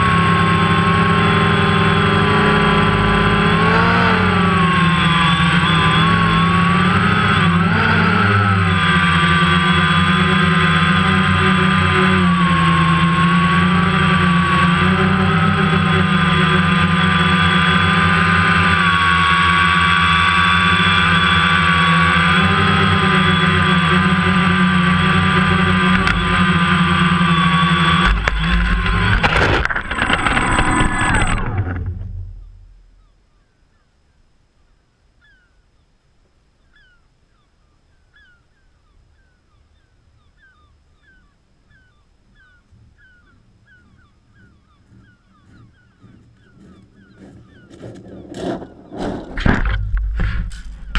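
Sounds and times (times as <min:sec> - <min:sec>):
drone motors whining: 0:00.0 - 0:33.2, 0:40.4 - 0:50.9
faint bird chirps: 0:32.4 - 0:49.1.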